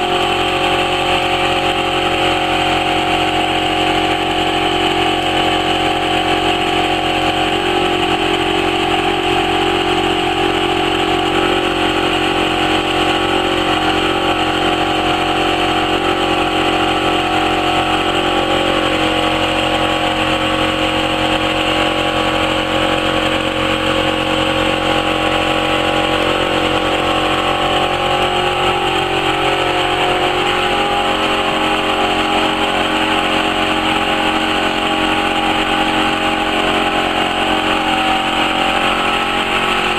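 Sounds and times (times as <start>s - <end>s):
laser cutting machine humming: 0.0s - 39.9s.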